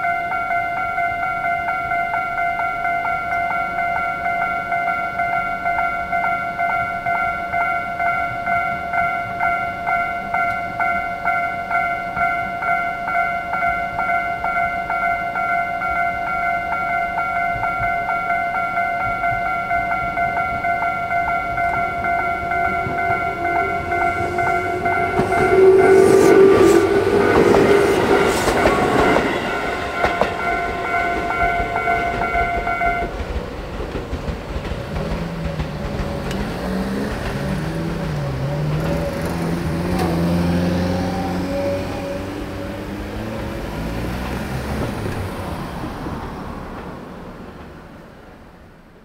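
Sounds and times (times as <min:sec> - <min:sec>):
level crossing warning bell: 0:00.0 - 0:47.9
train clattering over rail joints: 0:19.0 - 0:48.0
road vehicle engines pulling away: 0:21.4 - 0:48.5.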